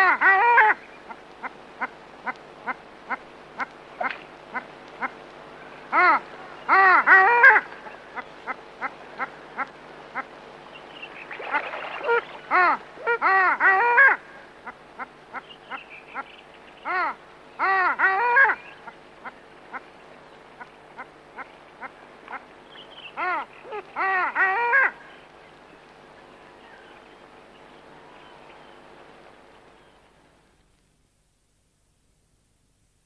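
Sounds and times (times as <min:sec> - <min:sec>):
duck hooting calls: 0:00.0 - 0:05.2, 0:05.9 - 0:19.9, 0:20.6 - 0:25.0.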